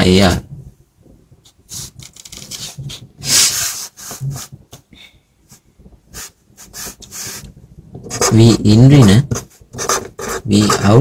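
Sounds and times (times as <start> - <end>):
marker scratching on paper: 1.7 - 4.5, 6.1 - 8.6, 9.3 - 11.0.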